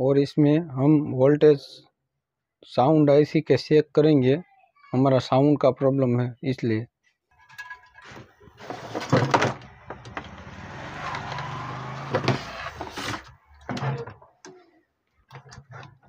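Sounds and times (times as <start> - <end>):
circuit board scraping and rustling: 7.5 - 10.4, 12.0 - 14.0.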